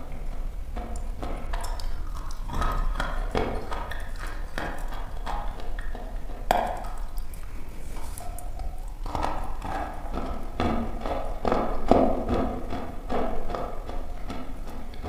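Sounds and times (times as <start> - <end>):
chalk crunching when chewed: 0.3 - 11.6.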